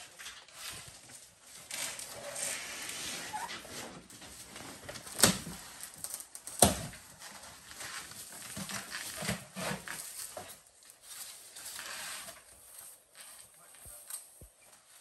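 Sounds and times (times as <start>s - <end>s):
gift box rustling: 4.0s - 14.2s.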